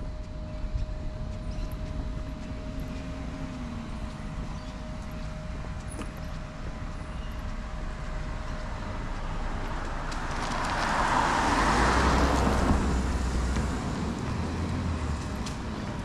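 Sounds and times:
car passing by: 7.4s - 16.0s.

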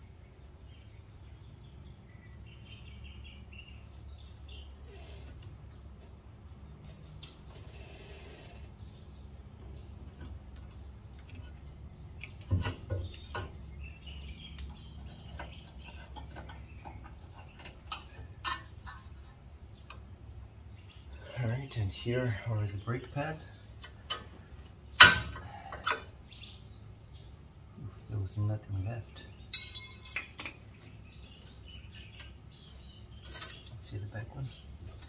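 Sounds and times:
birds chirping: 0.0s - 35.0s
metal clinks: 29.5s - 30.7s.

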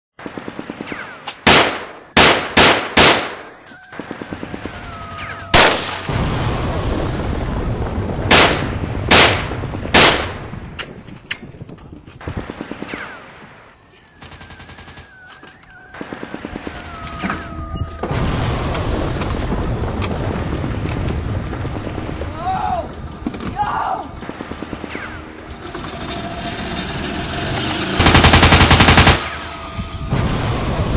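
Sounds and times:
whistling whines: 4.6s - 5.6s, 14.0s - 16.0s, 16.6s - 18.1s
automatic gunfire bursts: 27.9s - 29.5s.

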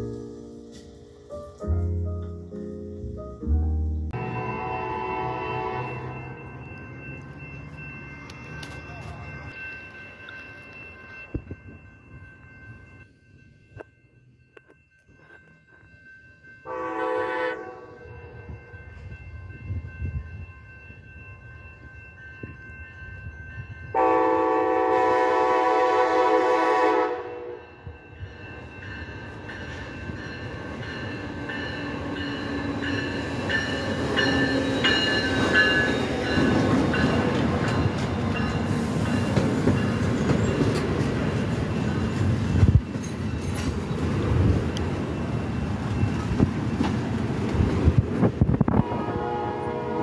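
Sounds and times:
train wheel and rail noise: 0.0s - 50.0s
train horn chord: 4.1s - 6.5s, 16.6s - 18.4s, 23.9s - 27.8s, 48.7s - 50.0s.

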